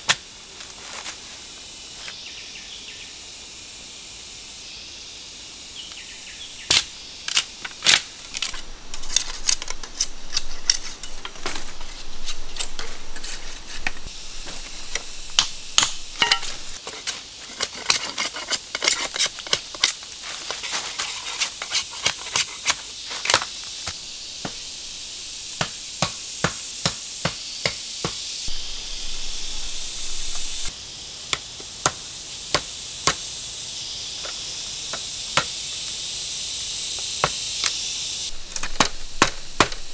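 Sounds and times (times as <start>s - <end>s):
high insect drone: 0.0s - 39.9s
machete striking bamboo: 6.7s - 9.8s, 14.9s - 16.8s, 25.6s - 29.3s, 38.4s - 39.9s.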